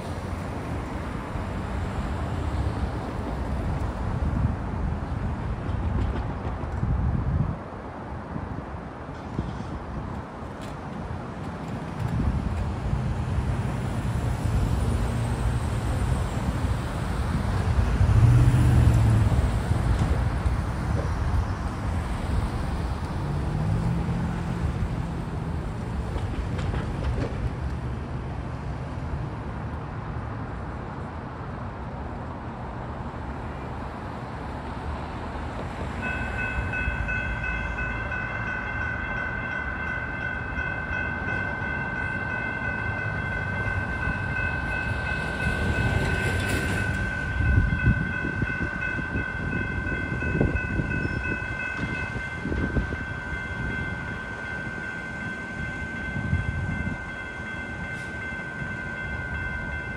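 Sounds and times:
street traffic rumble: 0.0s - 59.9s
railroad crossing bell ringing: 36.0s - 59.9s.

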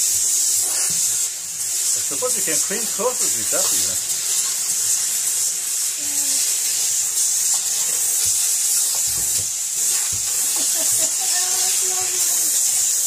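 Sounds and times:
brush scrubbing: 0.0s - 13.0s
steam hissing from nozzle: 0.0s - 13.0s.

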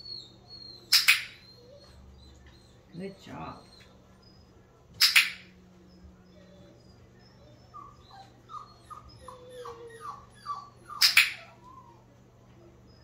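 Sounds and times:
puppy whimpering: 0.0s - 4.6s, 5.8s - 13.0s
training clicker click: 5.0s - 5.4s.

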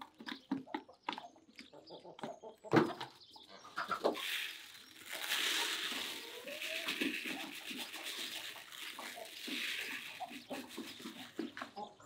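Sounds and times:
grain feed pouring onto plastic: 3.8s - 11.7s.

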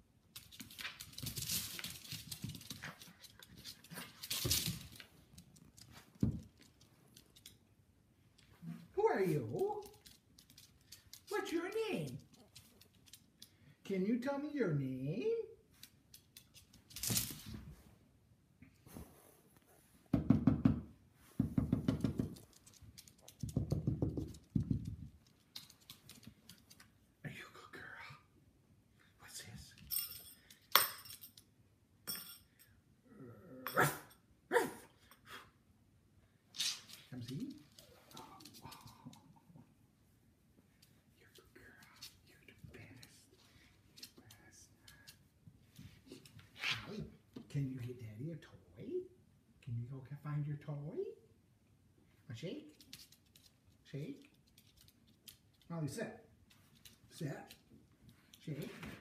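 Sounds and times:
dog paws pattering on hardwood floor: 0.2s - 14.5s, 15.6s - 18.0s, 18.9s - 27.2s, 36.6s - 48.1s, 52.0s - 59.0s.

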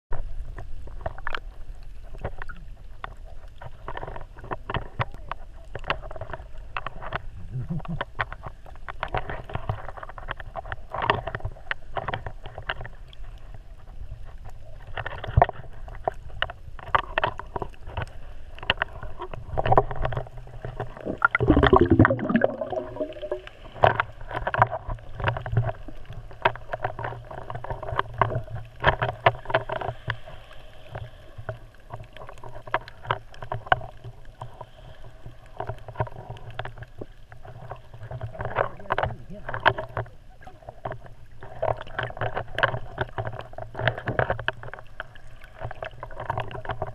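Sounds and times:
muffled underwater sloshing: 0.1s - 46.9s
bubbling gurgles: 19.0s - 26.3s.

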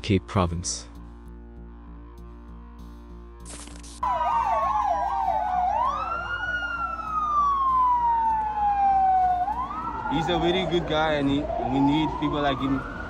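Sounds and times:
faint background music: 0.0s - 13.0s
police siren: 3.5s - 13.0s.

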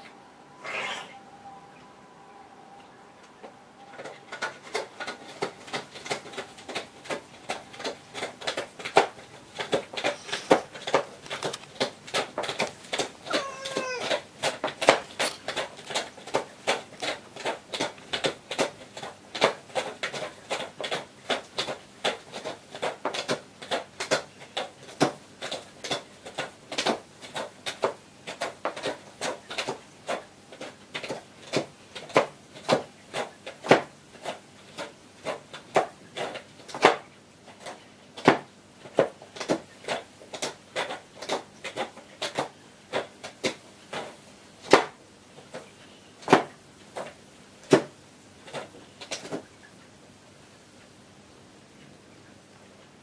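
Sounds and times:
cat clawing scratching board: 4.0s - 45.6s.

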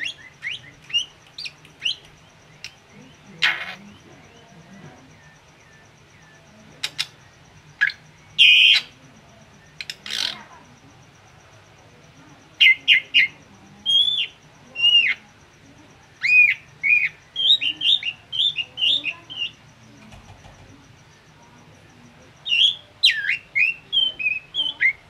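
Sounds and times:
bird clicks and rasping note: 0.4s - 2.8s, 9.7s - 10.4s.

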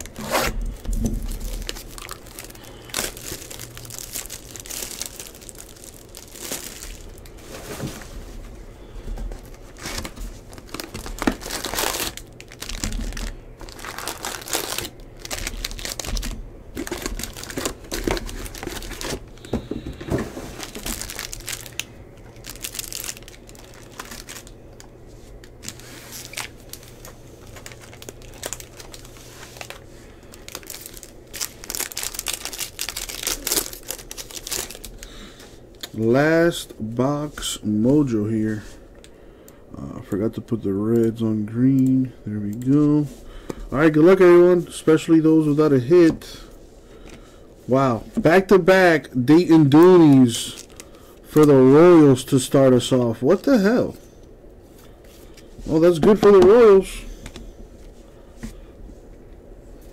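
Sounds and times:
plastic wrap crinkling and tearing: 0.0s - 7.4s, 9.5s - 19.5s, 20.4s - 24.8s, 25.5s - 35.2s, 49.3s - 51.5s.

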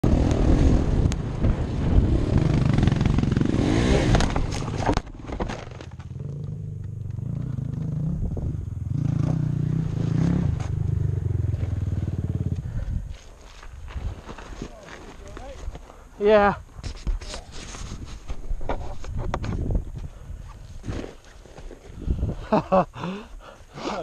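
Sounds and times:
dirt bike engine running: 0.1s - 4.9s, 5.9s - 13.6s
wind on microphone: 8.0s - 8.8s, 16.7s - 21.1s, 21.9s - 22.5s.

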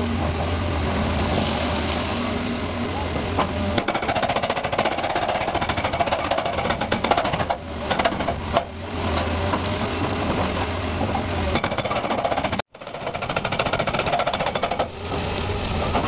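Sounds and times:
rapid mechanical rattling: 11.6s - 16.0s.

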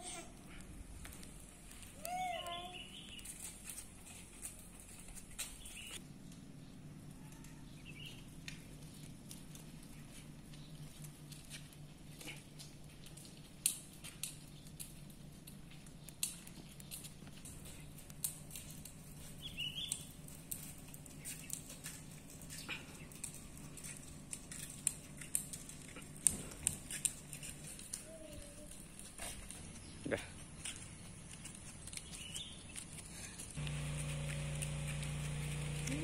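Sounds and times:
footsteps on paved path: 0.8s - 6.0s, 7.7s - 36.0s
low steady hum: 33.2s - 36.0s.

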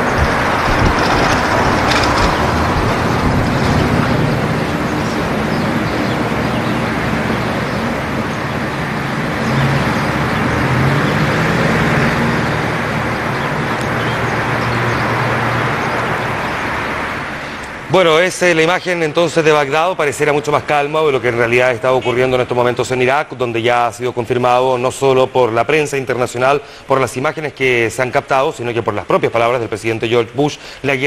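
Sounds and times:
low engine drone: 0.0s - 17.9s
distant road traffic hum: 0.0s - 31.0s.

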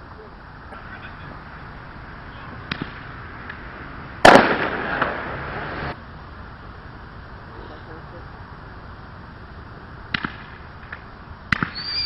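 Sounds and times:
fireworks popping and banging: 2.6s - 6.0s, 10.1s - 12.0s.

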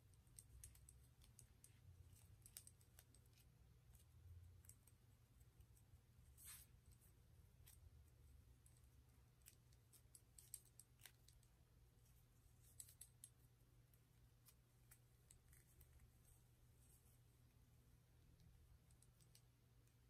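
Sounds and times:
fingers winding cotton cord: 0.0s - 7.0s, 7.6s - 11.6s
low steady hum: 0.0s - 20.0s.

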